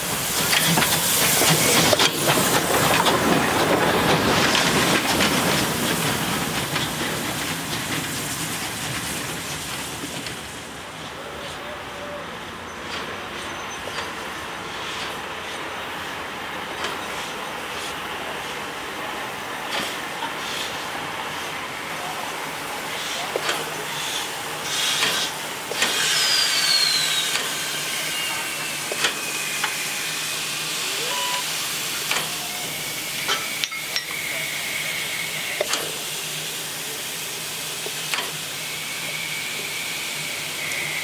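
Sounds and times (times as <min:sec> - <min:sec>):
steam hissing: 0:00.0 - 0:41.0
falling squeal: 0:12.0 - 0:14.0, 0:26.0 - 0:30.1.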